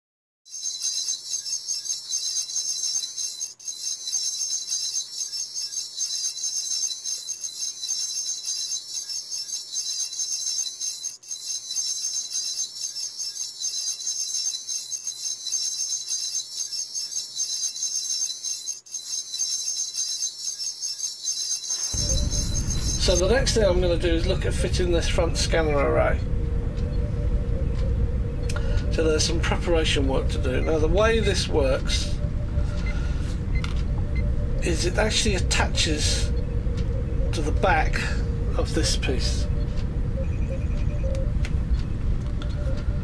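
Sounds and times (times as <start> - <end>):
shimmering bell jingle: 0.5 - 23.4.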